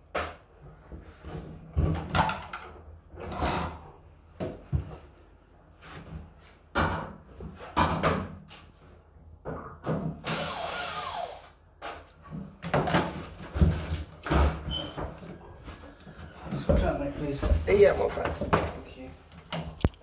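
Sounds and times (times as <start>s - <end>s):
knocks and clatter of handling: 0.1s - 3.7s, 11.8s - 20.0s.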